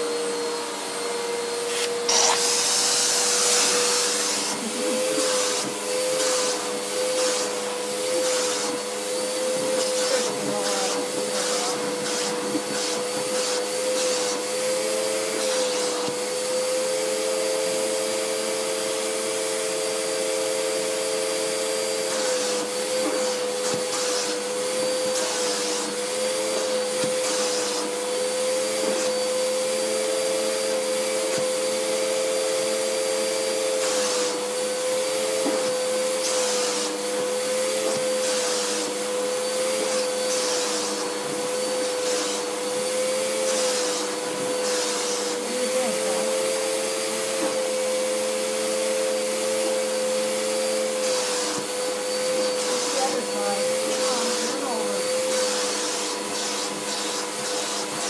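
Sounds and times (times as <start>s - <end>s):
vacuum cleaner running: 0.0s - 58.0s.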